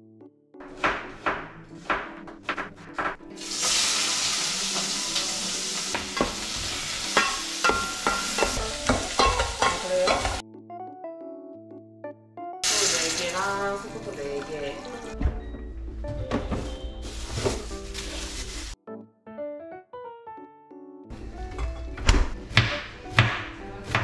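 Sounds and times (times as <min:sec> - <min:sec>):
soft piano music: 0:00.0 - 0:24.0
fish sizzling in a pot: 0:03.4 - 0:10.4, 0:12.6 - 0:13.8.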